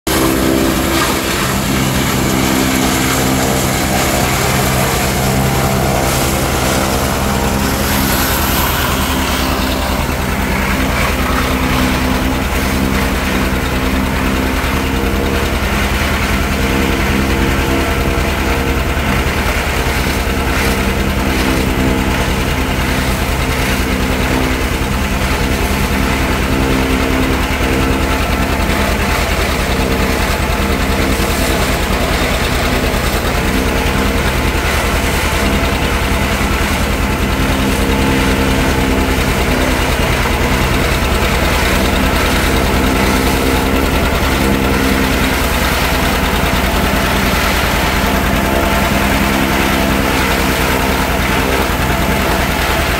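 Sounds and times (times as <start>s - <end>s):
forage chopper whirring: 0.0s - 52.9s
tractor engine running: 0.0s - 52.9s.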